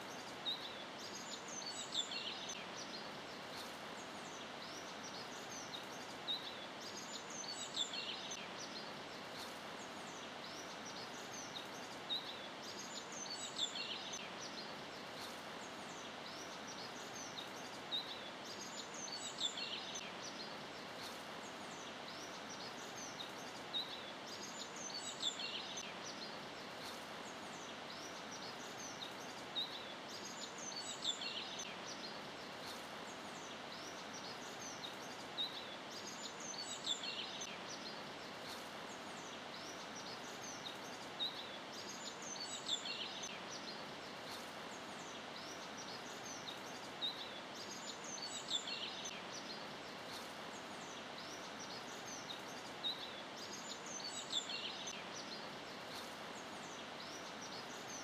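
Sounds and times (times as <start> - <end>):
steady hiss: 0.0 - 58.0.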